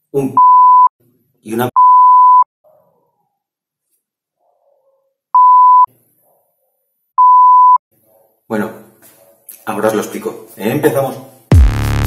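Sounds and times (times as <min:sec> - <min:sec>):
censor beep: 0:00.4 - 0:00.9, 0:01.8 - 0:02.5, 0:05.4 - 0:05.9, 0:07.2 - 0:07.8.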